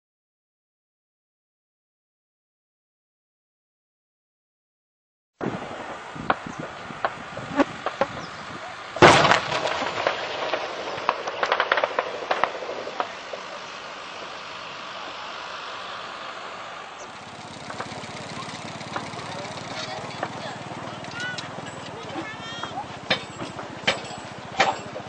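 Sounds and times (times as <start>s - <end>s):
shell explosion: 6.2s - 15.4s
steady background din: 7.5s - 25.0s
sharp cracks and pops: 9.0s - 14.5s, 17.1s - 19.2s.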